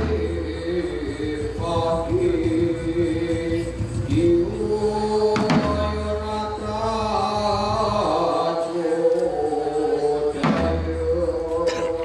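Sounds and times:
voices chanting long notes: 6.6 - 12.0.

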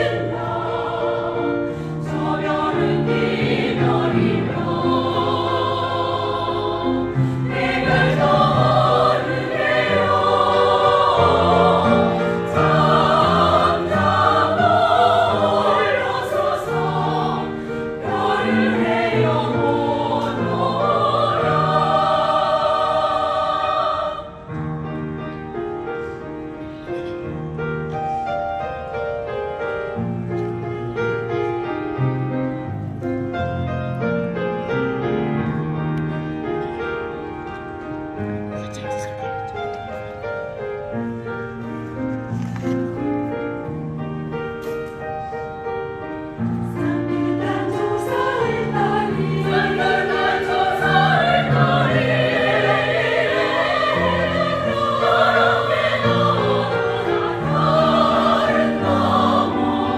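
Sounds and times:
choir singing: 0.0 - 24.8, 45.8 - 59.9.

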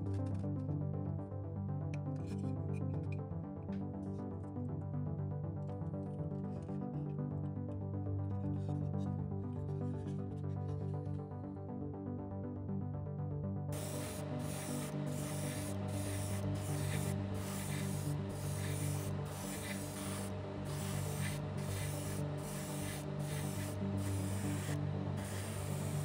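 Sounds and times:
airbrush spraying hiss: 13.8 - 26.0.

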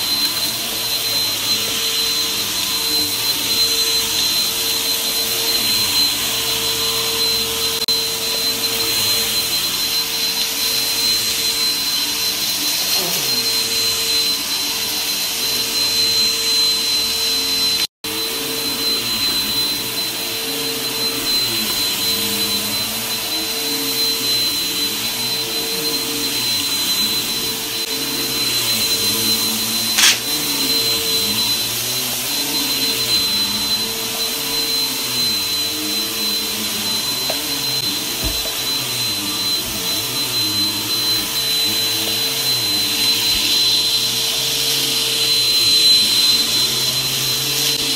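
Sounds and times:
vacuum cleaner running: 0.0 - 47.9
sharp click: 30.0 - 30.2.

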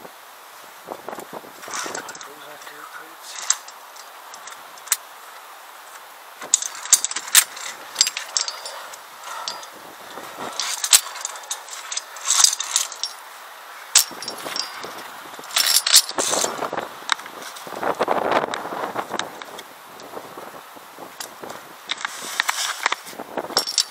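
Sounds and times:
wind gusts on microphone: 0.0 - 23.8
carabiners clinking on steel cable: 1.6 - 5.0, 6.4 - 13.3, 13.9 - 17.7, 21.2 - 23.9.

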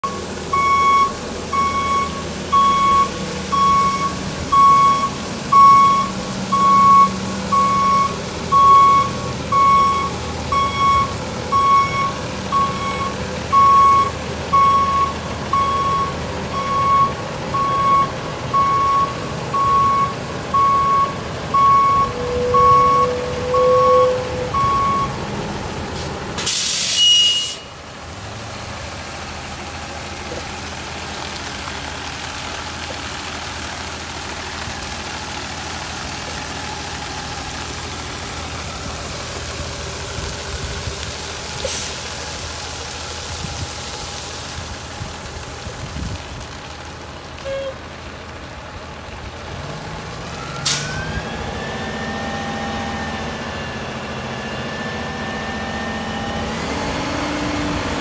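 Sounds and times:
truck backup alarm beeping: 0.0 - 25.3, 26.5 - 27.8, 47.4 - 47.8, 50.4 - 57.4
diesel engine running: 0.0 - 58.0
air brake hiss: 26.0 - 27.7, 41.6 - 42.0, 50.6 - 51.0.

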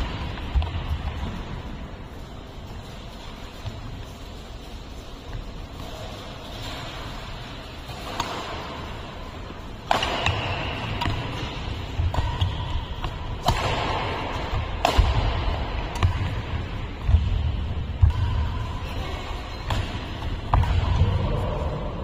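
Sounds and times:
rackets hitting shuttlecock: 6.5 - 21.7.

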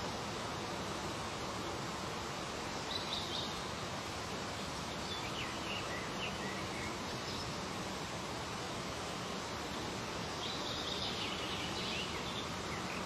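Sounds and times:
outdoor background hiss: 0.0 - 13.0
faint bird chirps: 10.3 - 13.0.

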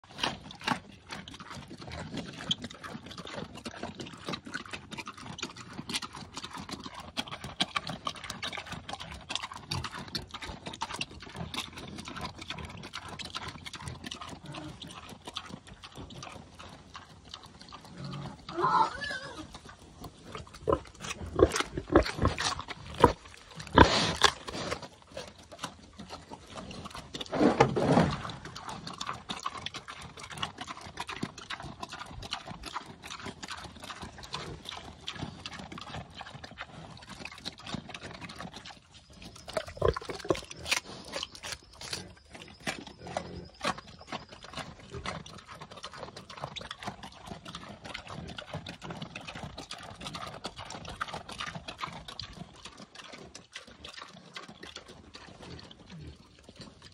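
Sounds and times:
boar crunching carrots: 0.0 - 56.9
boar grunting: 5.1 - 33.2, 39.4 - 44.0.

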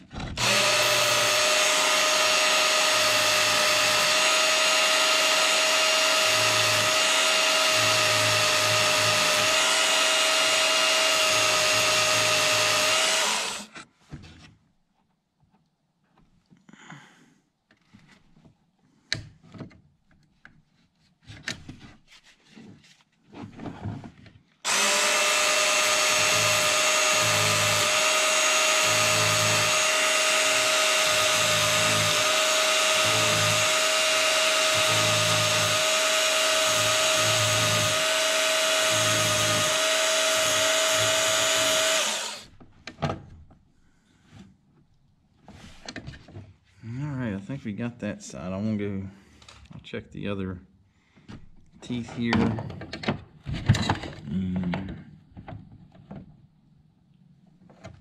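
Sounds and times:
electric belt sander whining: 0.4 - 13.8, 24.7 - 42.5.

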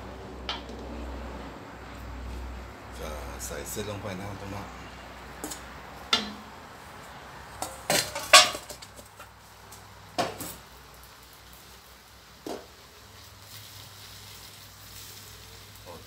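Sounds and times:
metal clanking against a wok: 0.4 - 0.9, 5.4 - 6.7, 7.5 - 9.3.

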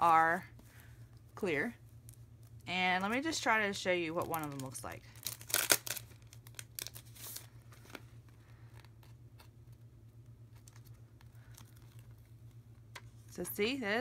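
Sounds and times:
plastic packaging crinkling: 4.1 - 9.8, 10.4 - 13.2.

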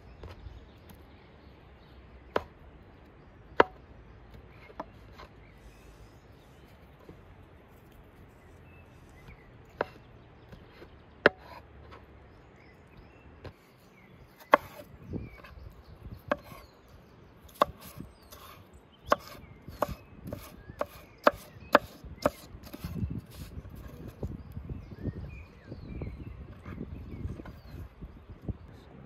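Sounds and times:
blade chopping on wood: 2.3 - 2.6, 3.5 - 3.9, 9.7 - 12.0, 14.4 - 15.5, 16.2 - 16.6, 17.5 - 23.0.

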